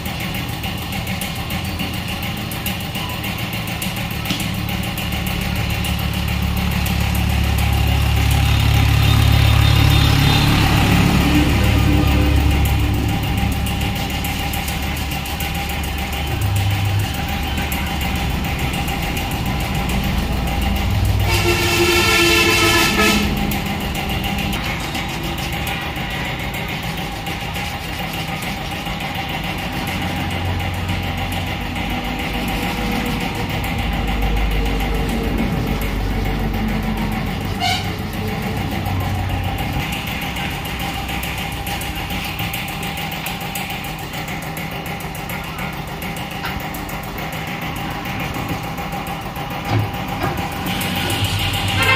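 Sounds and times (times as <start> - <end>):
low machine hum: 1.2 - 51.9
horn-like tone: 8.8 - 13.5, 21.1 - 24.6, 37.4 - 38.3, 50.7 - 51.9.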